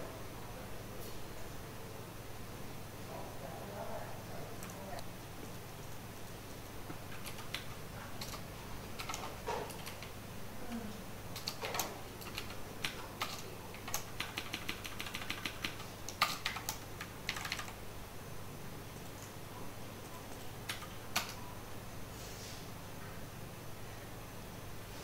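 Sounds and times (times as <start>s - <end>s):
computer keyboard keystrokes: 7.1s - 10.2s, 11.3s - 17.8s, 20.0s - 21.4s.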